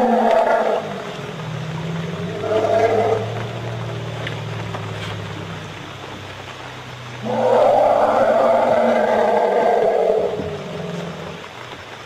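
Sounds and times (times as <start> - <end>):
elephant roar: 0.0 - 5.3, 7.2 - 11.4
elephant low rumble: 0.0 - 6.3, 7.0 - 11.6.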